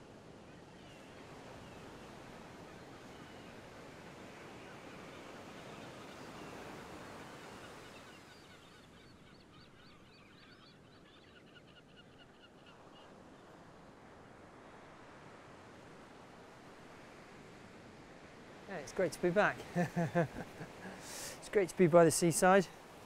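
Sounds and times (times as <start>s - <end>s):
faint sea surf on rocky shore: 0.0s - 10.1s, 12.4s - 23.0s.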